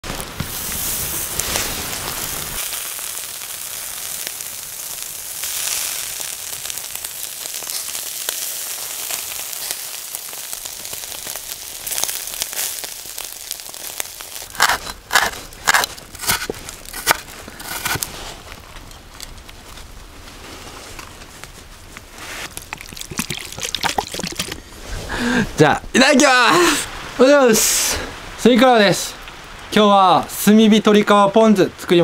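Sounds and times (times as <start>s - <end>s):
chicken skin sizzling on grill: 0.1s - 18.3s.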